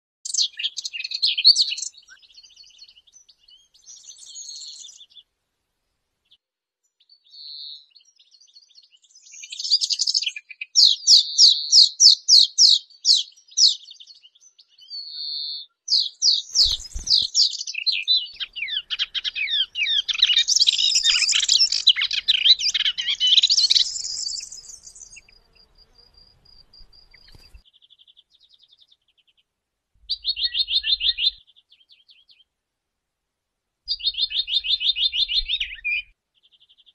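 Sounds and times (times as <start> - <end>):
warbler singing high-pitched song: 0.2 - 5.2, 6.8 - 29.4, 30.0 - 32.5, 33.9 - 36.9.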